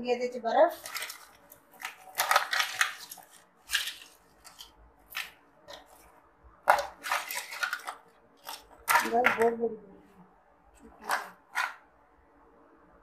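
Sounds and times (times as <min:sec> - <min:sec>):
ice cubes clattering into jug: 0:00.7 - 0:06.0, 0:06.7 - 0:09.6.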